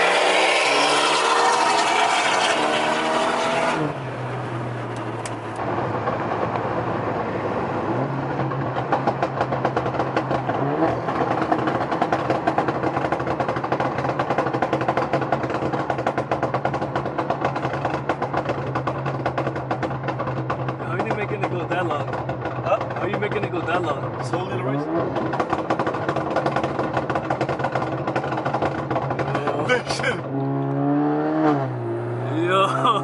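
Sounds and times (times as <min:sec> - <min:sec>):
car engine accelerating: 0:00.0 - 0:33.0
exhaust crackling and popping: 0:00.0 - 0:33.0.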